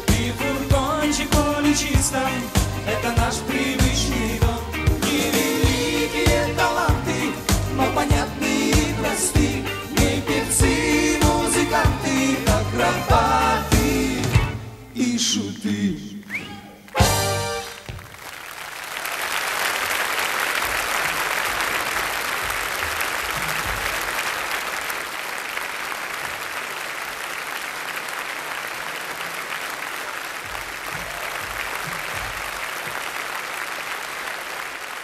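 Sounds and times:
audience applauding: 16.3 - 35.0.

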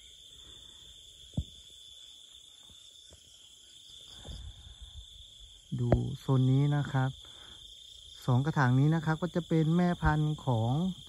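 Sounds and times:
crickets chirping: 0.0 - 11.0
low thump: 1.3 - 1.6.

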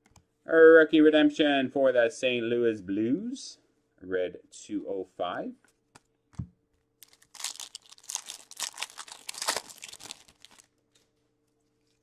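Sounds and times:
foil wrapper tearing and crinkling: 7.0 - 10.7.

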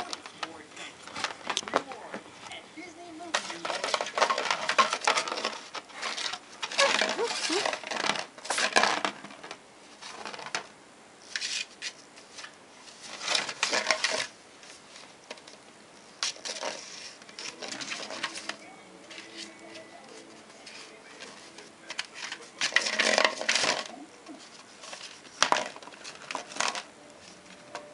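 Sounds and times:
claws scratching bowl: 3.2 - 10.6, 11.2 - 27.9
wrapped candy rustling: 3.3 - 10.6.

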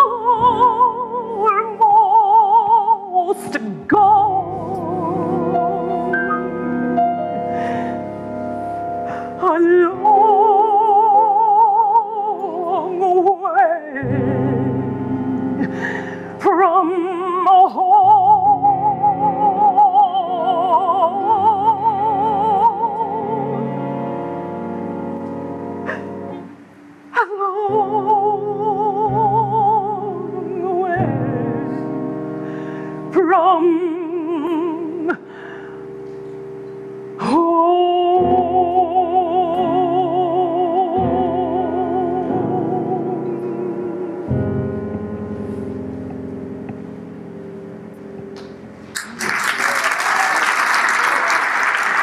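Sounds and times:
woman singing with vibrato: 0.0 - 6.2, 9.2 - 15.3, 16.3 - 24.2, 27.0 - 31.7, 33.1 - 35.3, 37.2 - 44.5
piano accompaniment: 0.0 - 49.8.

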